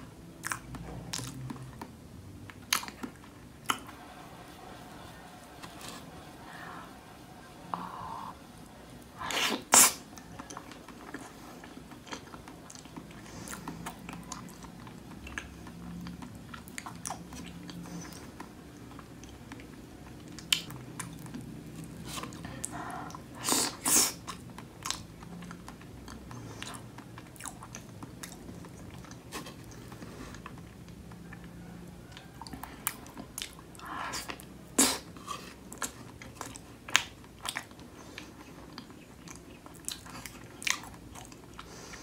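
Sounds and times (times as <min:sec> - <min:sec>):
wet chewing with clicks: 0:00.3 - 0:03.9, 0:09.3 - 0:42.0.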